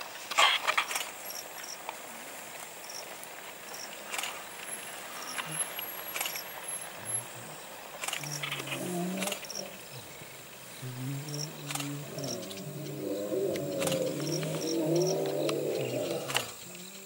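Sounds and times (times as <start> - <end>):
lions growling: 5.0 - 17.0.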